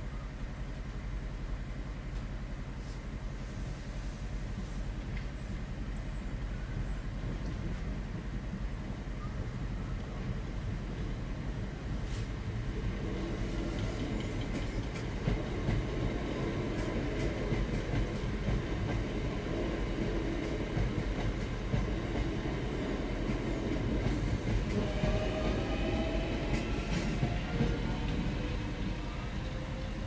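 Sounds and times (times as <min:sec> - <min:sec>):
train rumbling: 0:00.1 - 0:30.0.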